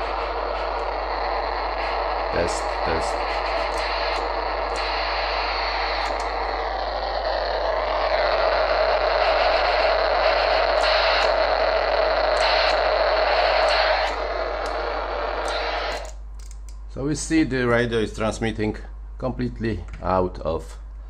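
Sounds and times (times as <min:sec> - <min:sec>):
radio whistle: 0:00.0 - 0:16.2
radio receiver hiss and static: 0:00.0 - 0:17.0.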